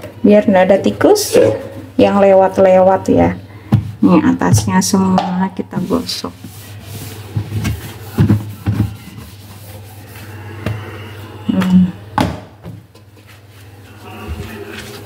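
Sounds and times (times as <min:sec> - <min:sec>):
cloth wiping surface: 0:05.7 - 0:10.7.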